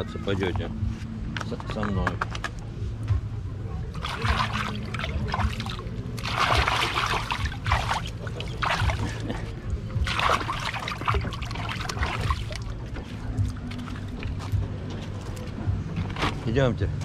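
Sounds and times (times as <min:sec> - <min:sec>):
hand splashing water: 0:04.0 - 0:14.6.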